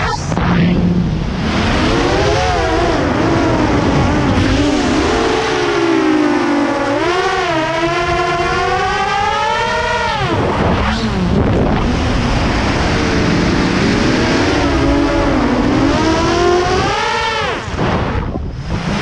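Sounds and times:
drone motors whining: 0.0s - 19.0s.

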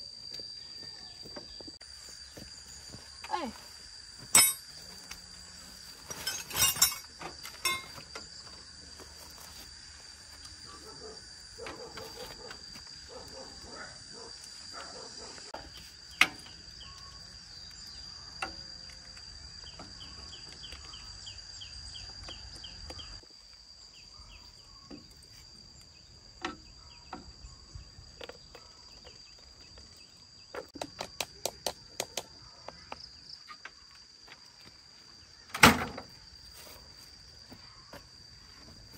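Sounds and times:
insects buzzing: 0.0s - 38.9s
tools clicking and knocking: 6.1s - 8.2s.

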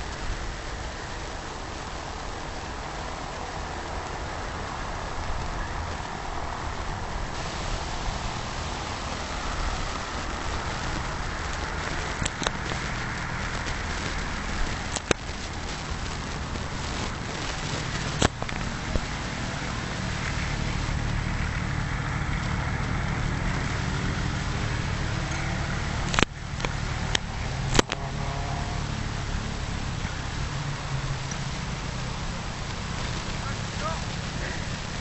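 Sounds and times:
wind buffeting microphone: 0.0s - 35.0s
sharp clicks: 9.6s - 19.1s, 25.3s - 28.0s.

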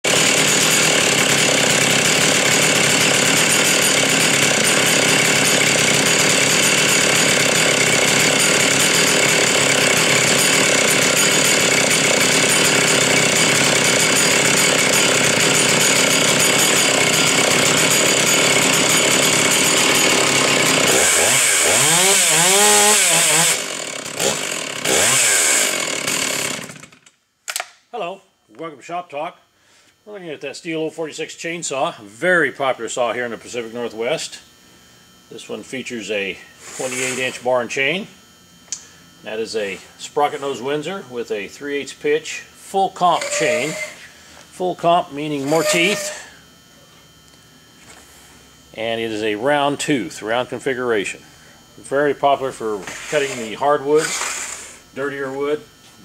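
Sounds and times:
chainsaw engine revving: 0.0s - 27.0s, 36.6s - 37.4s, 43.0s - 44.0s, 45.1s - 46.4s, 52.6s - 55.6s.

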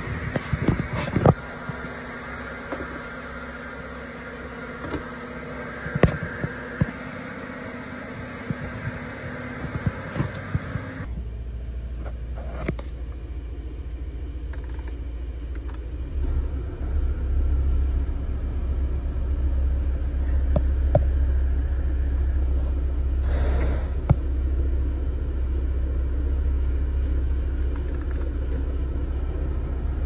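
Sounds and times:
low rumble inside car cabin: 0.0s - 30.0s.

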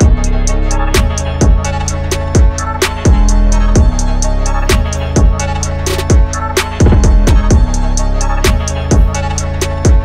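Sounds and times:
hi-hat ticks: 0.0s - 10.0s
deep bass drum hits: 6.8s - 7.7s.

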